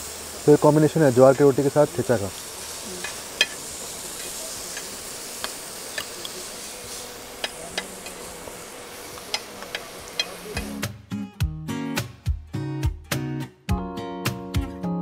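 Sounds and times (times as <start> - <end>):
food sizzling in oil: 0.0 - 11.0
steel spoon scraping a pan: 2.4 - 8.4, 9.2 - 10.7.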